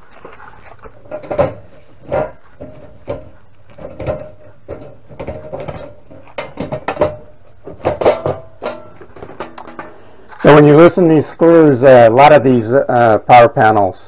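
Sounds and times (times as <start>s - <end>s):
metal panel cover clicks and knocks: 1.1s - 10.0s.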